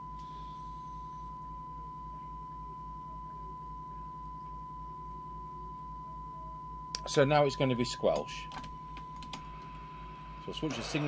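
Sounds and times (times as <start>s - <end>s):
steady test tone from loudspeaker: 0.0s - 11.0s
low pulsing hum: 8.4s - 11.0s.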